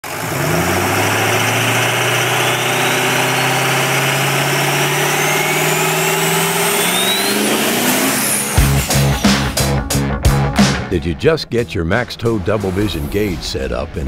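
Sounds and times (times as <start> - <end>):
vehicle engine running: 0.0 - 9.8
high whine rising: 0.1 - 10.0.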